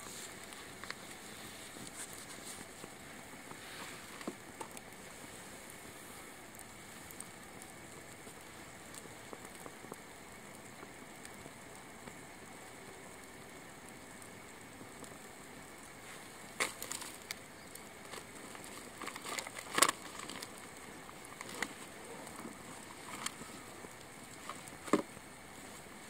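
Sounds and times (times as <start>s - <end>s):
fire popping: 0.0s - 26.0s
wood fire crackling: 0.0s - 26.0s.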